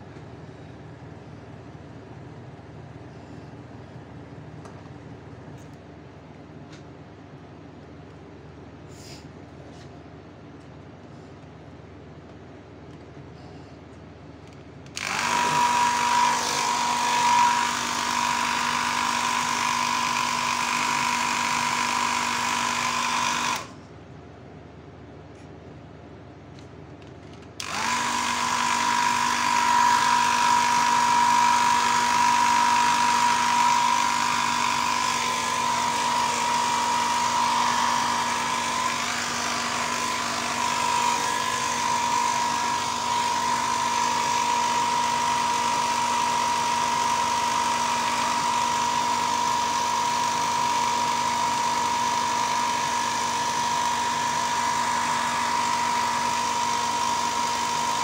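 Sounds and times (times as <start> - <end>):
airbrush compressor humming: 14.9 - 23.8, 27.6 - 58.0.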